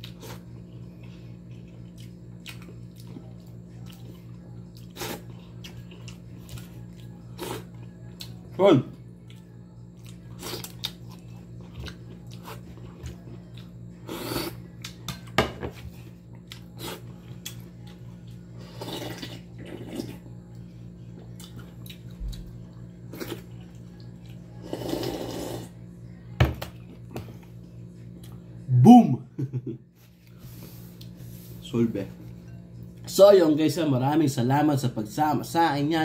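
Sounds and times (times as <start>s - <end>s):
low hum: 0.0s - 35.2s
person slurping broth: 18.7s - 20.2s, 24.6s - 25.7s.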